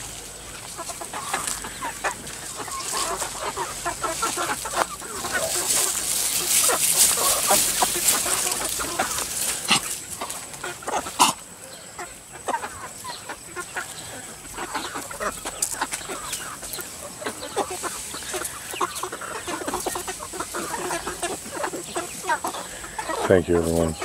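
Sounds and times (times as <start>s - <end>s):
chickens clucking: 0.0s - 24.0s.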